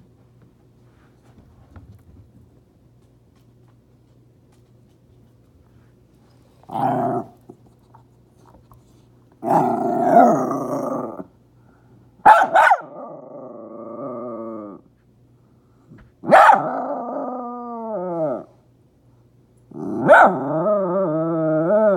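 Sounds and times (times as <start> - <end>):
dog growling: 6.7 - 7.6, 9.4 - 11.3, 12.8 - 14.8, 16.3 - 18.5, 19.7 - 21.9
dog barking: 12.2 - 13.0, 16.2 - 16.8, 20.0 - 20.5.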